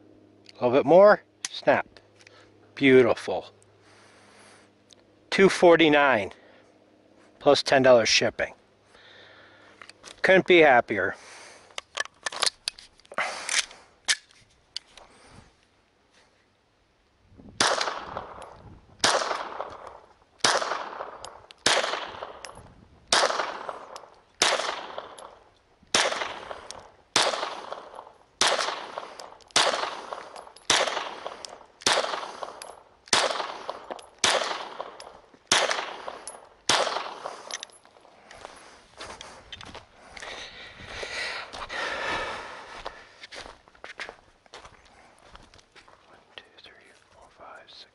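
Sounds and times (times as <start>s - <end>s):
gun handling clicks: 9.7s - 10.2s, 11.6s - 15.1s, 17.6s - 38.6s
pistol shots: 17.6s - 37.6s.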